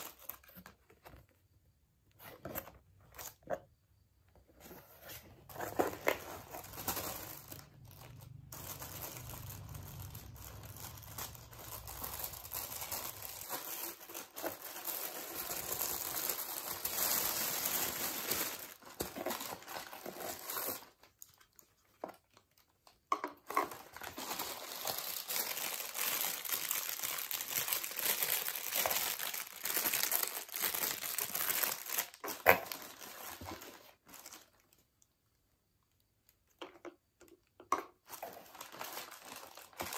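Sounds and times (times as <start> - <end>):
tissue paper crinkling: 4.8 - 21.7, 23.7 - 34.7, 38.1 - 39.9.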